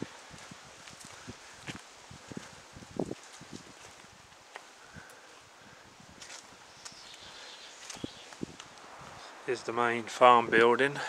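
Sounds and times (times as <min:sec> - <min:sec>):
footsteps on grass and stones: 0:00.0 - 0:04.8, 0:06.2 - 0:07.2, 0:07.8 - 0:09.2
faint wind: 0:00.0 - 0:11.0.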